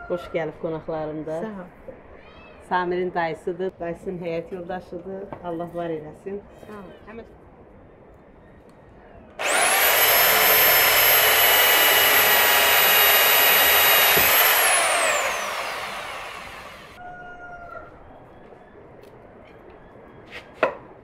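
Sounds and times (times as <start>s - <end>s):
power tool whining: 9.4s - 17.0s.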